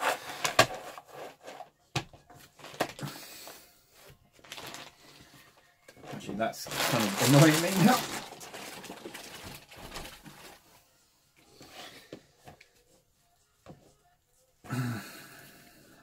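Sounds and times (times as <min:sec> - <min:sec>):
hands working clay on tinfoil: 0:03.9 - 0:14.5.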